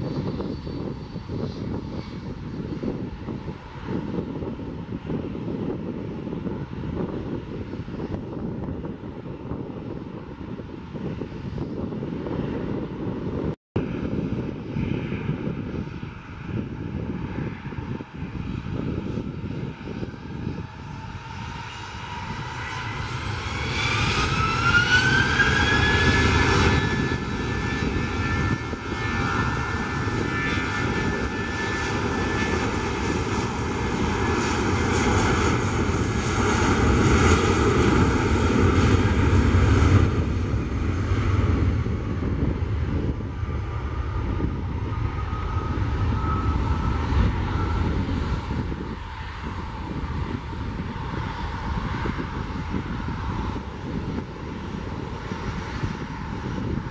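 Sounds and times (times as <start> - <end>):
jet engine roar and whine: 0.0 - 56.9
jet engines spooling up: 22.1 - 53.6.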